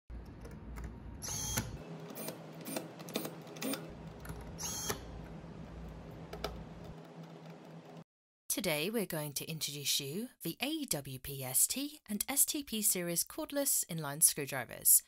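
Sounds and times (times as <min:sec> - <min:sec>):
cordless screwdriver whirring: 0:01.2 - 0:03.8, 0:04.6 - 0:05.0.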